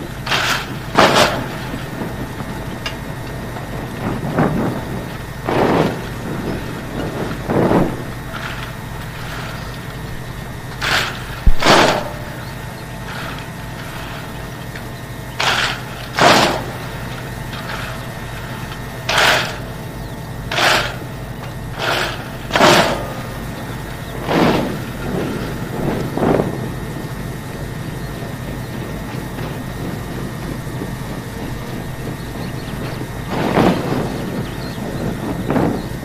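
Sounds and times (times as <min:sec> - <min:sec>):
steady low rumble: 0:00.0 - 0:36.0
shovels slapping: 0:10.8 - 0:12.4, 0:15.4 - 0:19.8.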